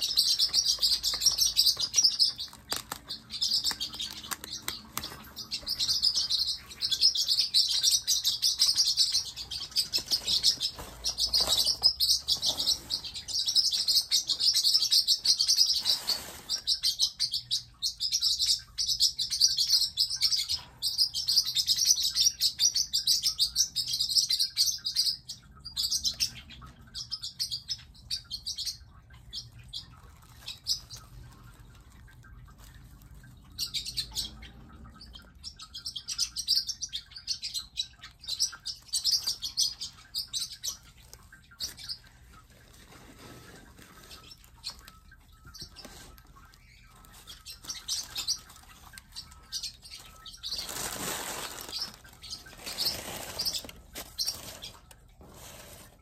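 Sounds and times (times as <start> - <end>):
paper crinkling: 0.0 - 6.9, 40.9 - 56.0
parrotlets chirping: 0.0 - 55.9.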